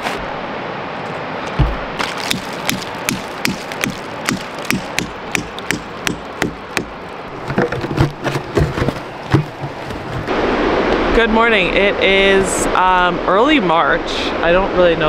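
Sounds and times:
hammer tapping plastic spout: 1.6s - 10.2s.

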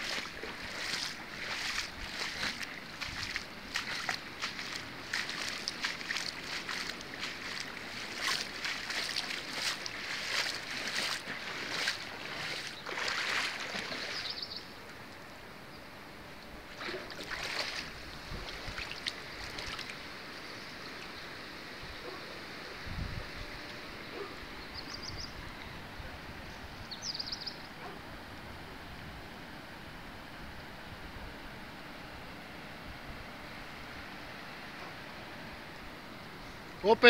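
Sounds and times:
splashing in shallow floodwater: 0.0s - 15.1s, 16.6s - 22.2s.

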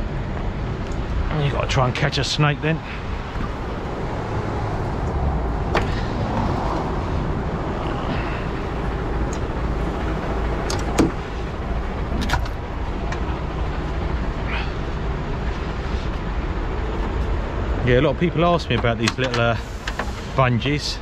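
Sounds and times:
truck diesel engine idling: 1.2s - 21.0s
sharp clicks and knocks: 10.5s - 11.2s, 18.7s - 20.1s.

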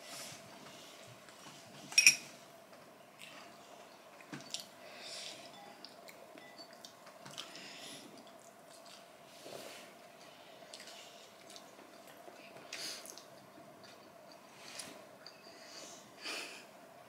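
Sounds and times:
faint steady hum: 0.0s - 17.0s
soft chewing: 3.1s - 15.5s
squishy hand-eating noises: 10.7s - 14.0s.

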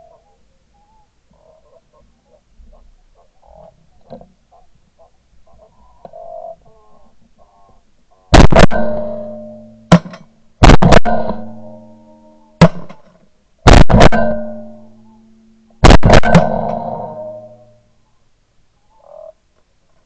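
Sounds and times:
shotgun shots echoing: 8.3s - 13.1s, 13.7s - 15.0s, 15.8s - 17.8s.

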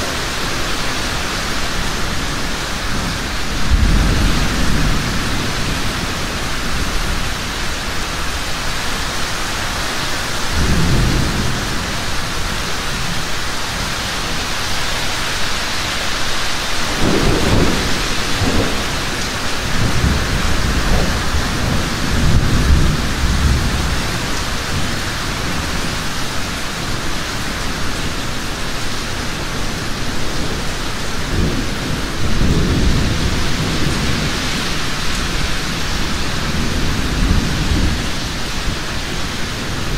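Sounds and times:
thunder rumbling: 0.0s - 8.6s, 10.4s - 14.3s, 16.8s - 26.1s, 29.7s - 39.9s
heavy rain falling: 0.0s - 39.9s.

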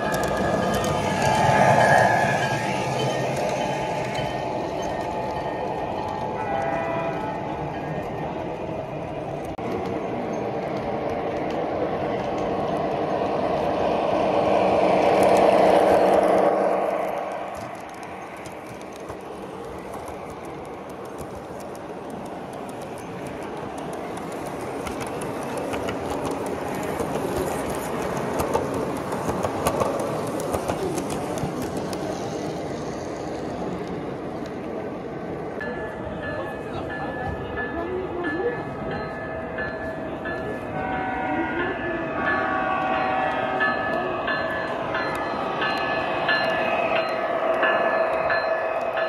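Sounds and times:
wheels clicking over track: 0.0s - 7.5s, 9.4s - 34.8s.

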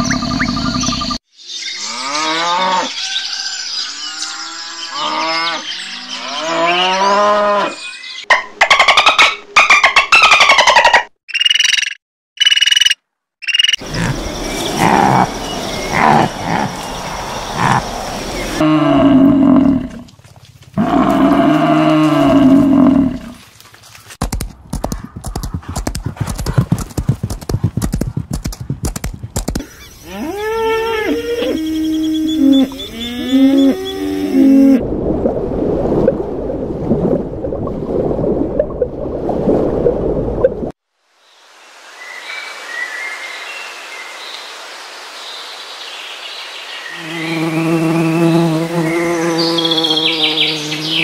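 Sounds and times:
cattle mooing: 20.8s - 23.4s, 30.0s - 34.8s
rapid clicking: 24.2s - 29.6s.

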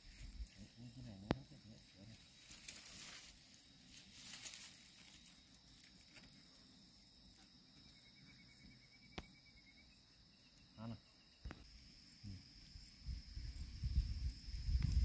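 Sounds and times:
insects droning: 0.0s - 15.0s
light rustling: 1.8s - 6.5s.

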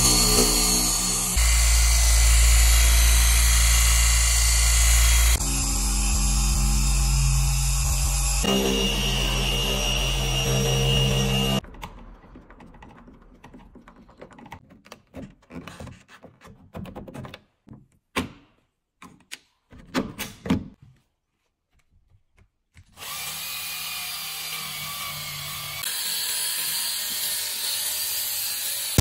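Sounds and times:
drill whirring: 0.0s - 11.6s, 23.0s - 29.0s.

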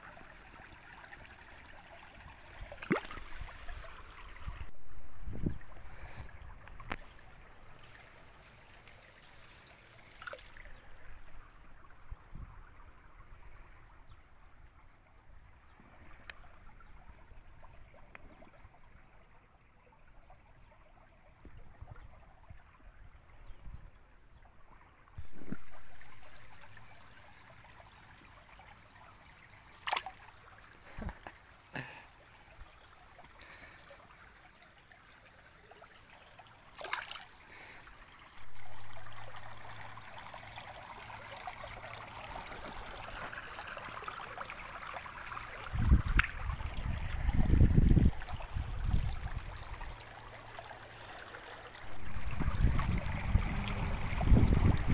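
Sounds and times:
stream trickling over stones: 0.0s - 54.9s
short water splashes: 2.6s - 4.2s, 10.0s - 10.8s, 29.3s - 33.9s, 35.7s - 54.9s.

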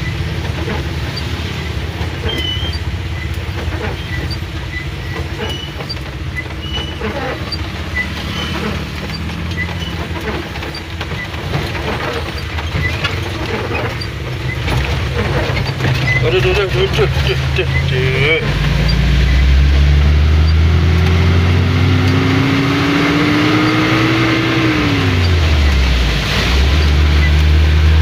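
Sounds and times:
car engine and road drone: 0.0s - 28.0s
rain hissing on car and road: 0.0s - 28.0s.

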